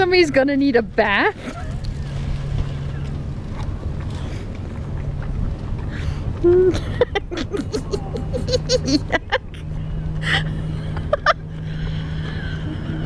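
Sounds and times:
steady low hum: 0:00.0 - 0:13.0
person laughing softly: 0:06.4 - 0:13.0.

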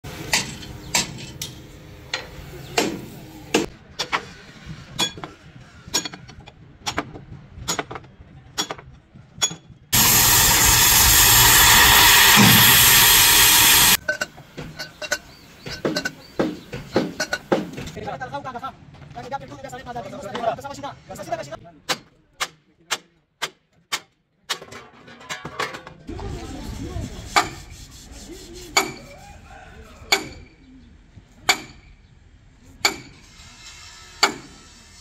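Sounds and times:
loud hiss of rushing air: 0:10.0 - 0:14.0.

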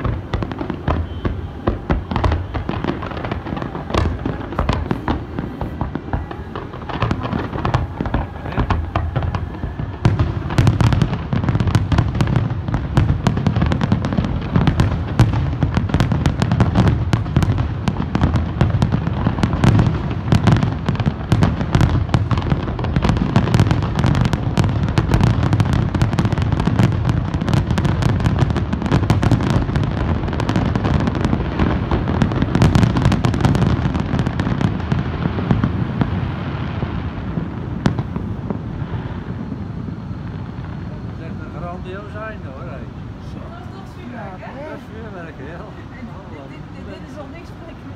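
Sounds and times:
fireworks booming and crackling: 0:00.0 - 0:47.9.

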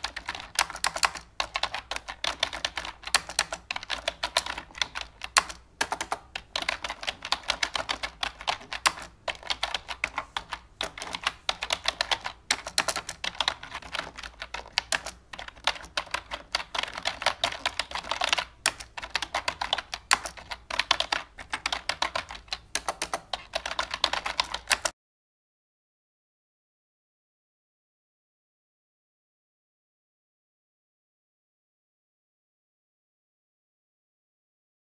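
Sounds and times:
rapid typing on keyboard: 0:00.0 - 0:24.9.

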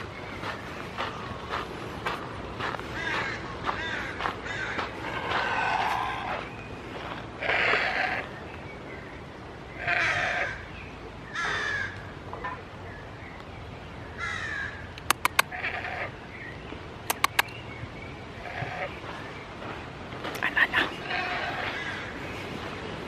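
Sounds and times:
sharp clicks: 0:15.0 - 0:15.5, 0:17.0 - 0:17.6.

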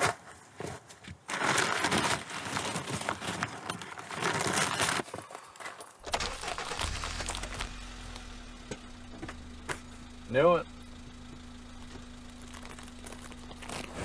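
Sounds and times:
paper bag crinkling: 0:00.0 - 0:07.9, 0:11.7 - 0:14.0
plastic snack packet crinkling: 0:01.3 - 0:07.8, 0:11.7 - 0:14.0
low steady hum: 0:06.0 - 0:14.0.

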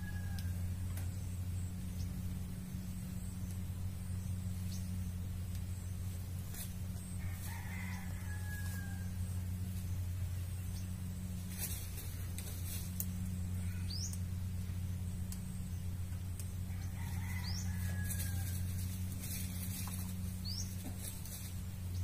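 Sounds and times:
rooster crowing: 0:00.0 - 0:00.8, 0:07.2 - 0:09.5, 0:16.7 - 0:19.0
steady low hum: 0:00.0 - 0:22.0.

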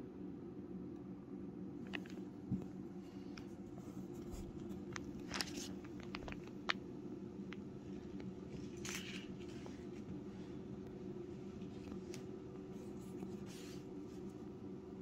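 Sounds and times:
steady low hum: 0:00.0 - 0:15.0
soft clicks and rustles: 0:01.8 - 0:06.9.

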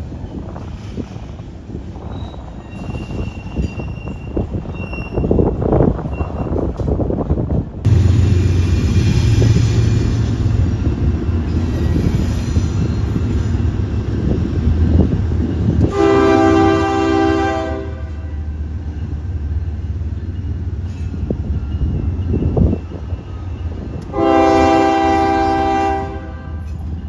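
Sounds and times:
diesel locomotive engines droning: 0:00.0 - 0:27.0
train horn blast: 0:15.8 - 0:18.4, 0:24.1 - 0:26.7.

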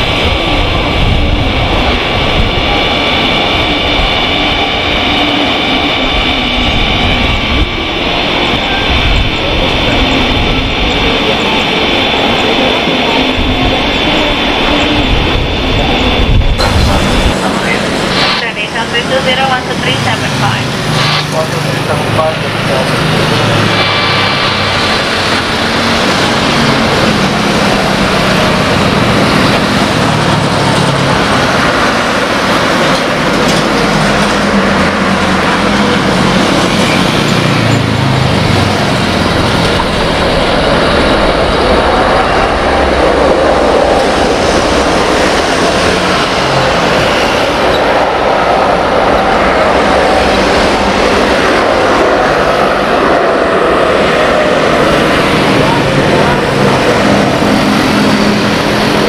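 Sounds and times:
jet engine rush: 0:00.0 - 0:59.0
thin high whine: 0:16.6 - 0:25.7.

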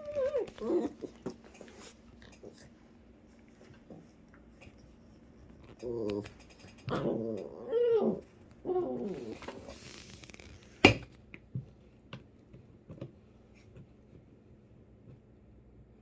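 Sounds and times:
puppy whining yowl: 0:00.0 - 0:02.6, 0:05.8 - 0:09.9
puppies chewing chair: 0:00.0 - 0:07.5.

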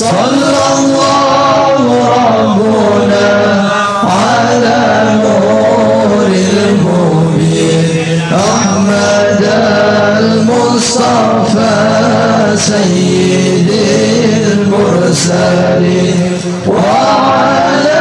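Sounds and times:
man chanting melodically: 0:00.0 - 0:18.0.

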